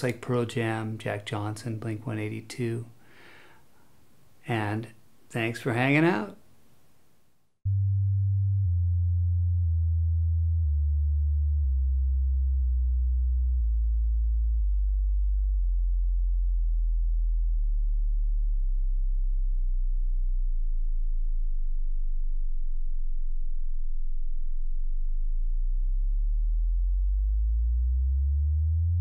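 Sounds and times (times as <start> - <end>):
deep pure tone stepping down: 7.7 - 29.0.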